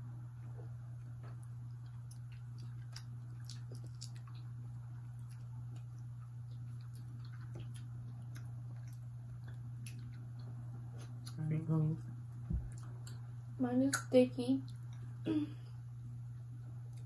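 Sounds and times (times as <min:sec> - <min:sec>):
soft chewing: 0:00.0 - 0:17.0
steady low hum: 0:00.0 - 0:17.0.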